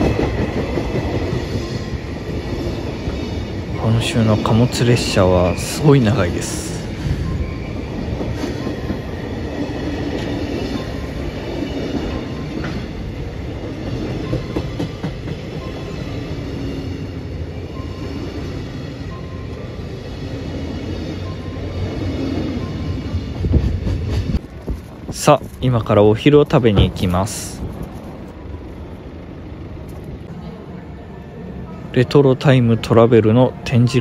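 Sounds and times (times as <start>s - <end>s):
train wheels rumbling on rail: 0.0s - 34.0s
wheels clicking over rail joints: 7.6s - 16.5s.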